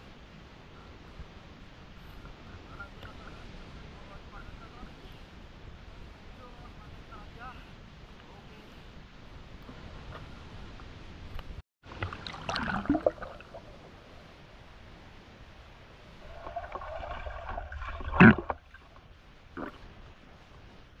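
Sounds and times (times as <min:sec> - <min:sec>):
water sloshing and gurgling: 0:11.8 - 0:14.1, 0:16.1 - 0:21.0
splashing: 0:11.9 - 0:13.8, 0:16.2 - 0:20.0.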